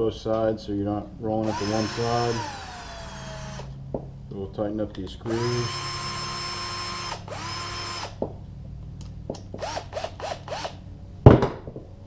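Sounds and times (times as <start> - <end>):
cordless drill motor whine: 1.4 - 3.8, 5.3 - 8.2, 9.6 - 10.8.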